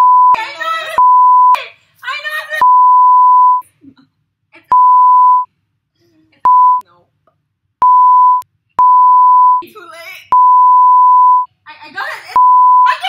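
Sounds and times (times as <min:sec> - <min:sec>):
censor bleep tone: 0:00.0 - 0:00.4, 0:01.0 - 0:01.6, 0:02.6 - 0:03.6, 0:04.7 - 0:05.5, 0:06.5 - 0:06.8, 0:07.8 - 0:09.6, 0:10.4 - 0:11.5, 0:12.4 - 0:12.9.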